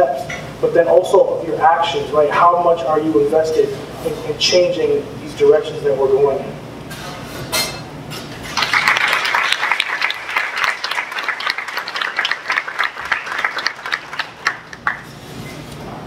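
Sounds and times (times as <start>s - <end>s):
audience applause: 8.6s - 15.1s.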